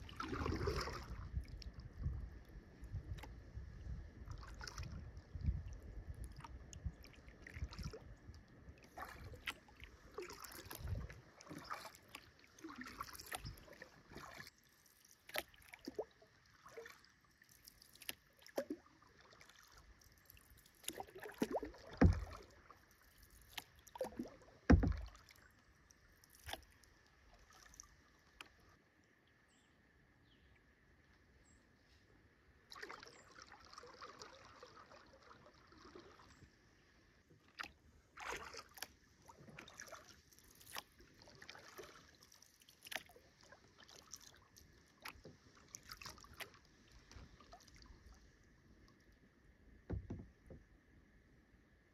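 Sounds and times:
paddle splashing and dripping water: 0:00.0 - 0:29.5, 0:32.6 - 0:51.2
low thumps: 0:24.7 - 0:25.1.

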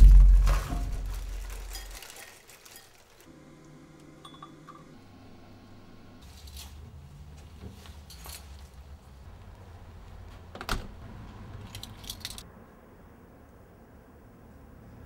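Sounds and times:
low hum: 0:00.0 - 0:01.5.

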